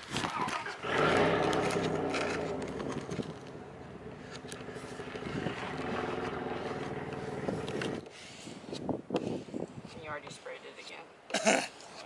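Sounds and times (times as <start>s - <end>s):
engine hum: 0.7s - 8.7s.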